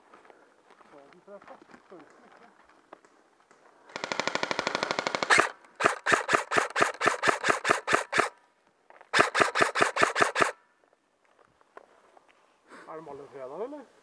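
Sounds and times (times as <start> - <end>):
airsoft gun firing: 3.9 - 8.3, 9.1 - 10.6.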